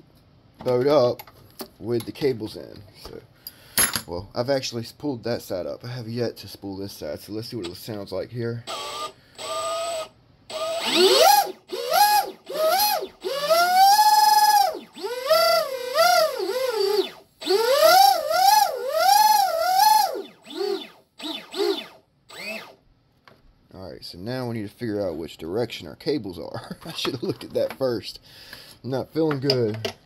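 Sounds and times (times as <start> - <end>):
electric motor whine revving: 8.7 - 22.8.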